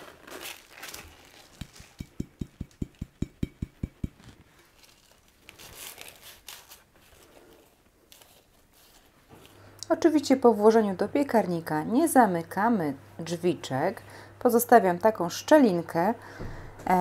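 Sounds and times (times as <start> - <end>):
dry leaves rustling onto paper: 0.0 - 2.0, 4.4 - 9.5
glass jar tapping: 2.0 - 4.4
hand spreading leaves on paper: 3.6 - 9.6.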